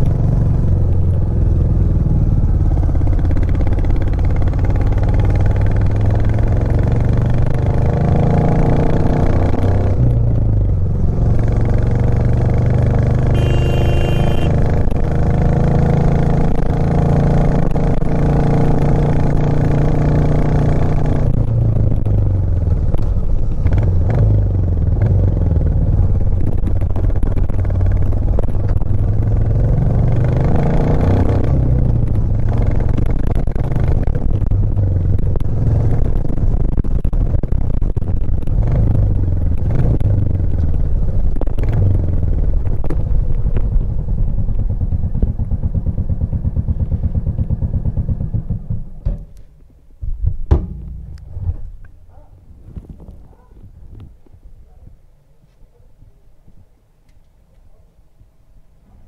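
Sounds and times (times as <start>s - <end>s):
motorcycle engine under load: 9.2s - 30.4s, 31.4s - 51.8s
brief high tone: 13.4s - 14.5s.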